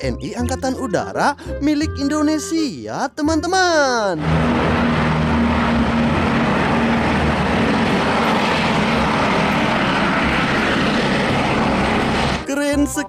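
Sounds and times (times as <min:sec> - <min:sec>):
helicopter hovering: 0:04.2 - 0:12.5.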